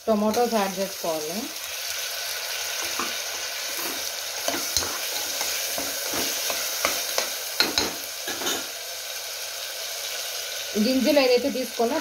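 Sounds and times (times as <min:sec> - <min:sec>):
vegetables sizzling in oil: 0:00.0 - 0:12.0
metal ladle scraping a pot: 0:02.8 - 0:07.0.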